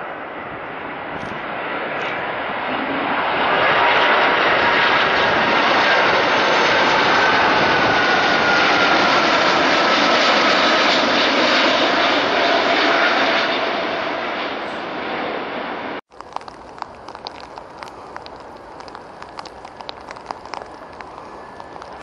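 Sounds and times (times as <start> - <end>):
jet airliner passing overhead: 0.0 - 22.0.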